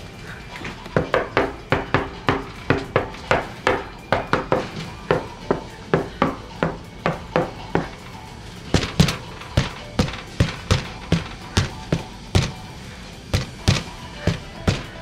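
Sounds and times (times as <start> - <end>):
knocking on a wooden door: 8.8 - 12.6, 13.4 - 15.0.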